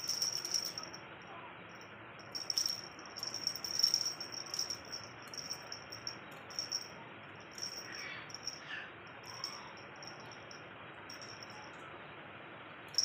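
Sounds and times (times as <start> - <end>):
beaded toy rattling: 0.0 - 1.0, 2.2 - 11.6.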